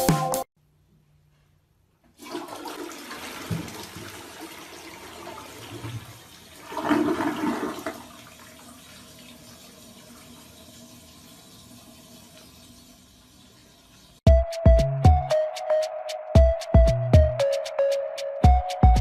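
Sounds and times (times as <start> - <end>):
toilet flushing: 2.2 - 14.2.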